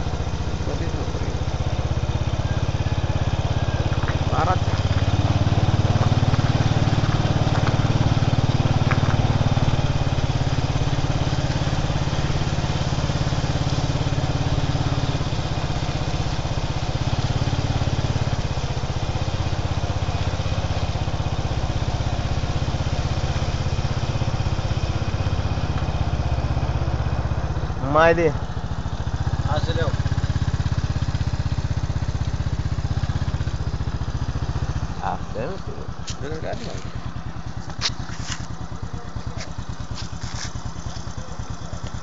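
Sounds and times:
motorcycle engine running: 0.0s - 42.0s
road and wind noise: 0.0s - 42.0s.

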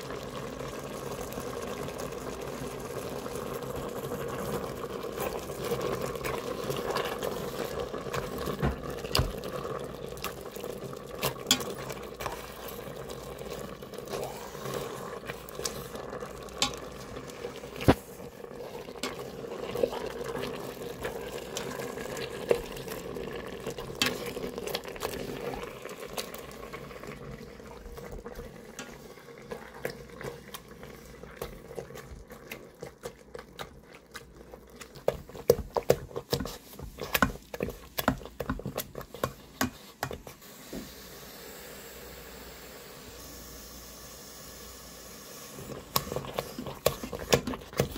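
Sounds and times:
wet mashing: 3.7s - 40.4s, 45.6s - 47.9s
metal masher scraping pot: 11.1s - 25.7s, 45.6s - 47.9s.

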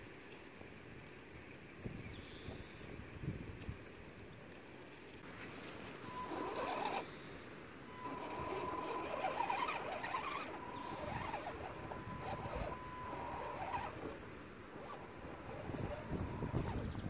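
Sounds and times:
chassis rattling and scraping: 5.2s - 7.1s, 7.9s - 17.0s
electric motor whining: 5.7s - 17.0s.

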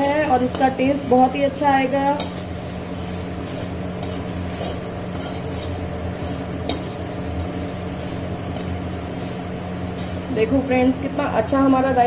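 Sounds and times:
steady low hum: 0.0s - 12.0s
spatula scraping a metal pan: 2.0s - 10.3s.

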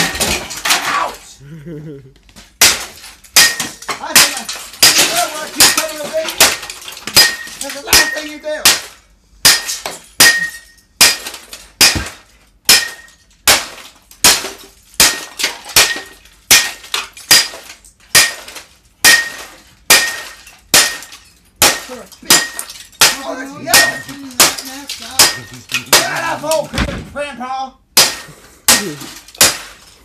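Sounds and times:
hand tool smashing printer: 0.0s - 1.1s, 2.6s - 27.1s, 28.0s - 29.9s
plastic parts breaking: 0.0s - 1.1s, 2.6s - 8.2s, 28.7s - 30.0s.

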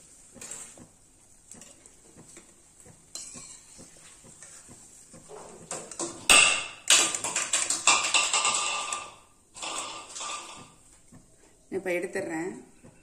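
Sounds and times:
frying in hot oil: 0.0s - 13.0s
ladle scraping metal pan: 6.9s - 10.8s.

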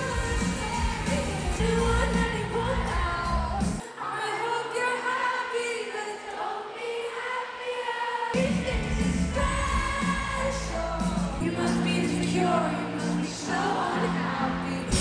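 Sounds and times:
live pop band playing: 0.0s - 3.8s, 8.4s - 15.0s
woman singing amplified vocals: 0.0s - 15.0s.

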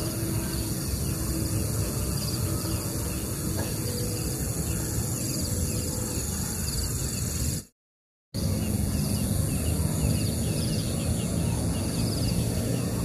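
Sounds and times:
low rumbling noise: 8.4s - 13.0s.

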